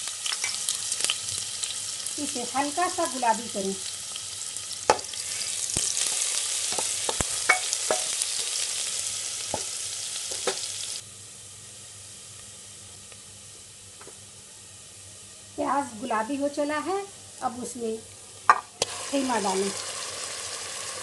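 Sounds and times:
onion sizzling in hot oil: 0.0s - 21.0s.

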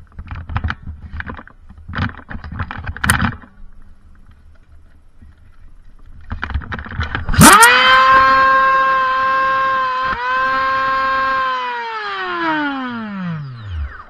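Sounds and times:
toy blaster motors whining: 7.4s - 14.0s.

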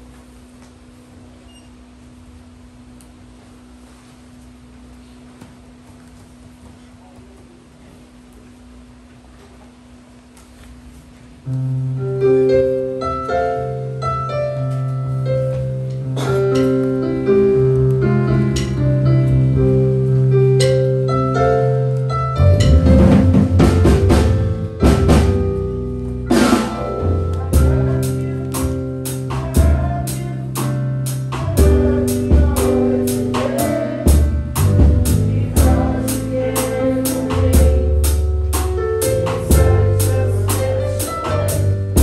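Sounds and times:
keyboard melody: 11.7s - 42.0s
drum kit: 22.4s - 42.0s
held bass note: 22.4s - 42.0s.

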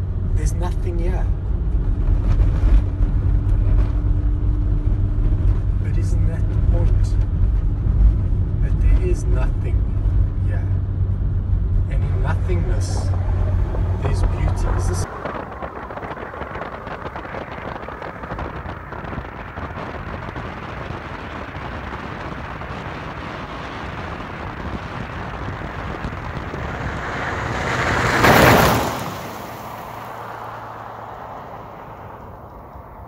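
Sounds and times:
wind buffeting microphone: 9.9s - 33.0s
vehicle speeding past: 10.9s - 33.0s.

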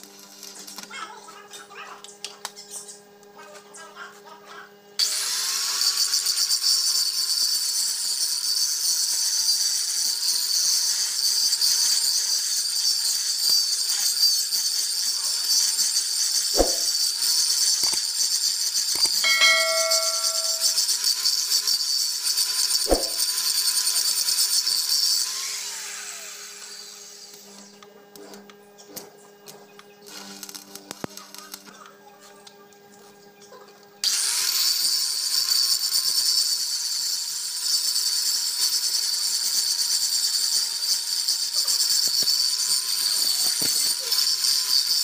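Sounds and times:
angle grinder grinding metal: 13.0s - 17.0s, 17.8s - 21.0s, 34.1s - 45.0s.

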